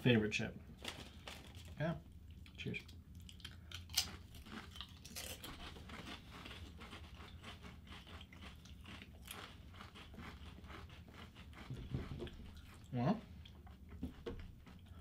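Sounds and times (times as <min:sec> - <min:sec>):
potato chips crunching: 0:02.4 - 0:11.6.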